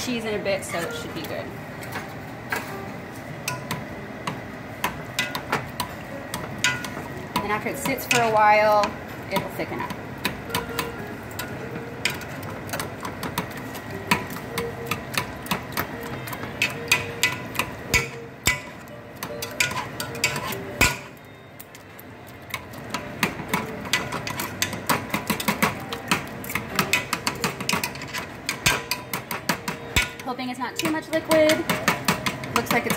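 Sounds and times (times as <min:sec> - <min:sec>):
potato masher scraping metal pot: 0:19.3 - 0:21.3, 0:22.5 - 0:32.9.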